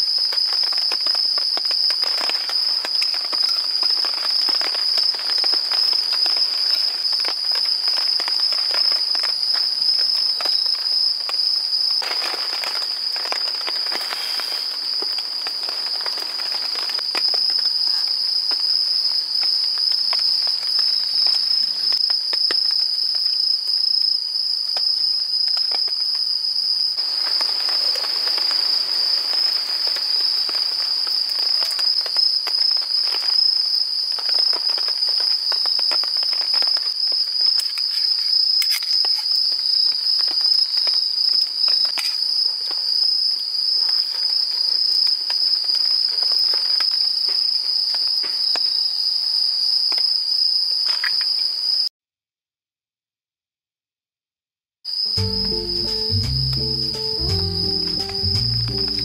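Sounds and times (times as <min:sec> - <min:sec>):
crickets trilling: 0:00.0 - 0:51.9, 0:54.9 - 0:59.0.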